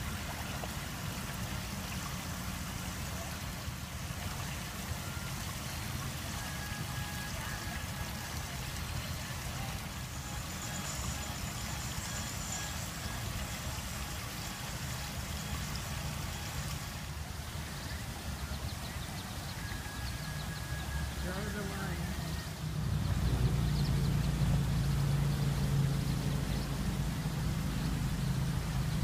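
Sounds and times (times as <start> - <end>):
trickling stream water: 0.0 - 29.0
low rumble: 22.1 - 29.0.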